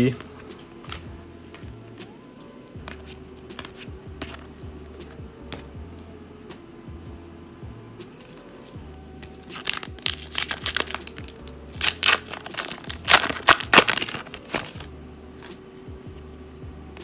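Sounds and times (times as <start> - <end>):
foil wrapper tearing and crinkling: 9.5 - 14.9.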